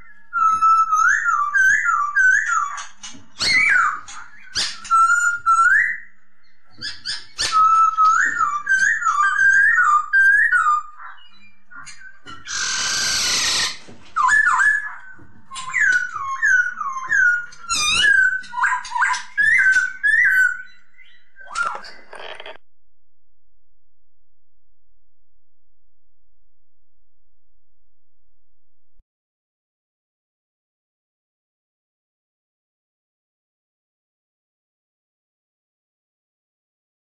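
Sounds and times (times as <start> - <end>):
laughingthrush whistled song: 3.4 - 22.1
harsh rasping bird call: 12.5 - 13.8.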